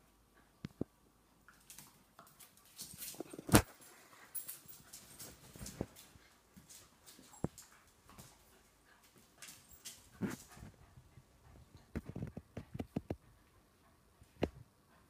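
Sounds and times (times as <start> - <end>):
claws clicking on stone floor: 1.5 - 8.4
dogs scuffling: 1.5 - 10.9.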